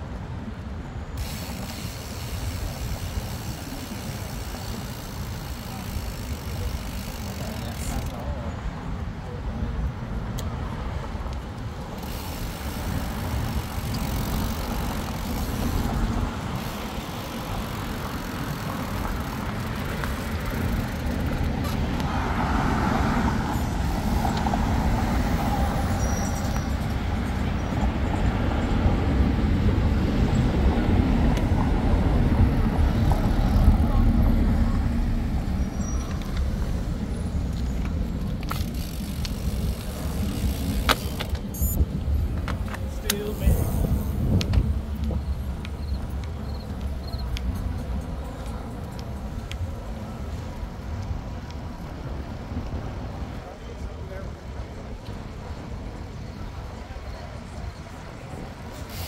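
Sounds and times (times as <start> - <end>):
city traffic rumble: 0.0 - 59.0.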